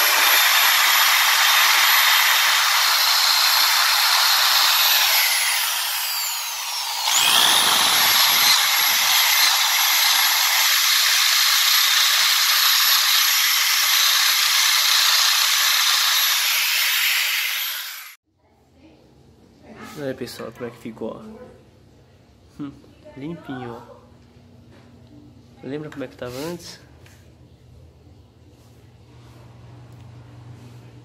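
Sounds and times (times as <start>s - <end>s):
drill wire brush scrubbing metal: 0.0s - 18.2s.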